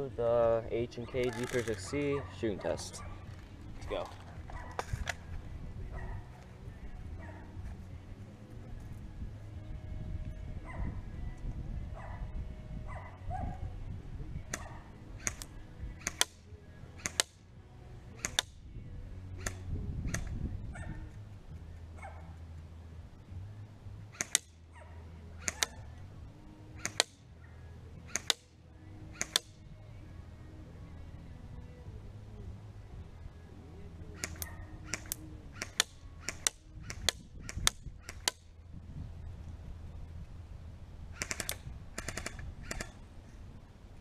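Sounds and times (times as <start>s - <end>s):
airsoft rifle shots: 14.5s - 16.4s, 17.0s - 17.4s, 18.2s - 18.6s, 24.1s - 24.6s, 25.4s - 25.8s, 26.8s - 27.2s, 28.1s - 28.5s, 29.2s - 29.6s, 34.2s - 38.4s, 41.2s - 43.0s.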